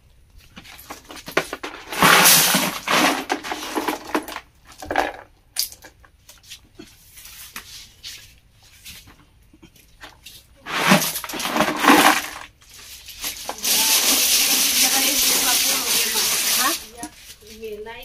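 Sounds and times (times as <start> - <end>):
snail shells clinking and rattling: 0.9 - 6.1, 10.6 - 17.0.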